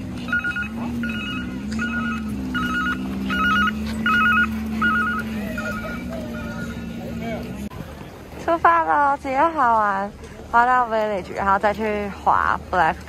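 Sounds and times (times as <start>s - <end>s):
telephone ringing trill: 0.2s - 6.8s.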